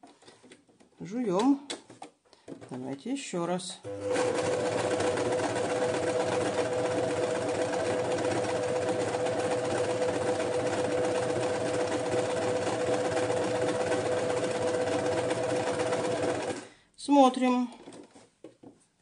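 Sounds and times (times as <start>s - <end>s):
sewing machine whirring: 3.8s - 16.7s.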